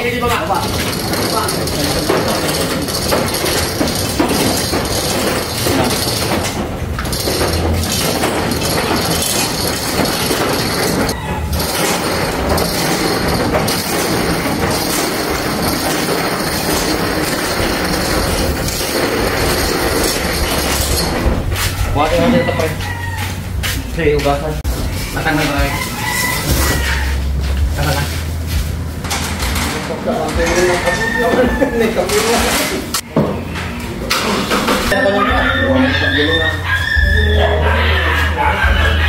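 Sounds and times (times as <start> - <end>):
compressor rolling on wheels: 0.0 - 23.6.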